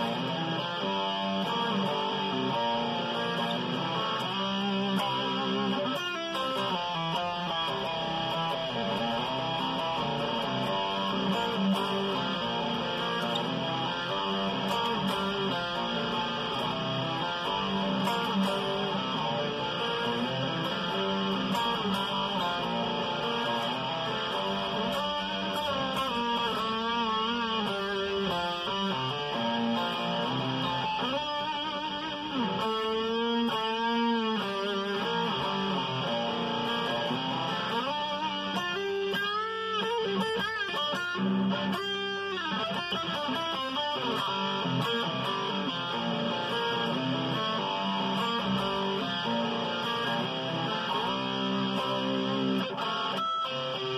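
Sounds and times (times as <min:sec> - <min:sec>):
electric guitar riff: 0:00.0 - 0:53.9.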